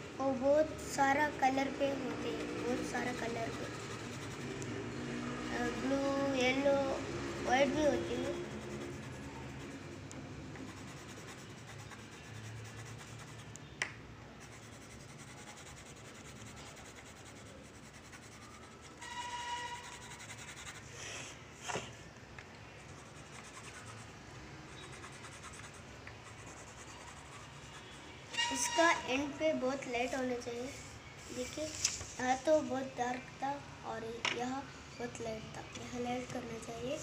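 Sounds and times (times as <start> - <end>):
pencil scratching on paper: 2.0 - 4.6, 7.4 - 13.6, 14.4 - 21.8, 22.8 - 24.1, 24.7 - 29.0.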